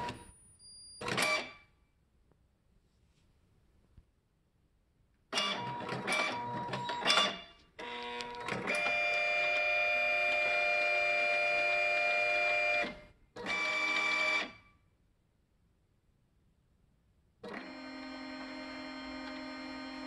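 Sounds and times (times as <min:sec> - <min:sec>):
printer stepper motors whining: 0:17.5 - 0:20.0.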